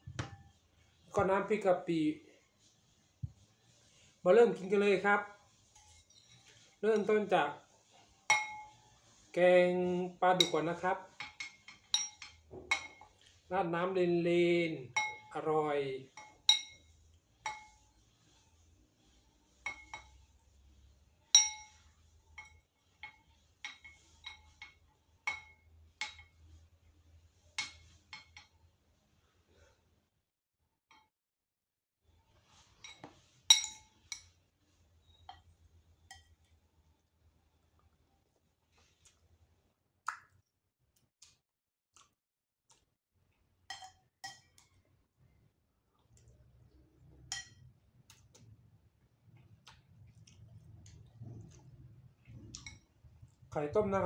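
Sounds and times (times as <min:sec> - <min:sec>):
metal spoon clinking on ceramic: 0:08.3 - 0:08.8, 0:11.2 - 0:13.0, 0:16.2 - 0:17.8, 0:21.3 - 0:21.8, 0:32.8 - 0:34.4, 0:43.7 - 0:44.7, 0:47.3 - 0:47.7.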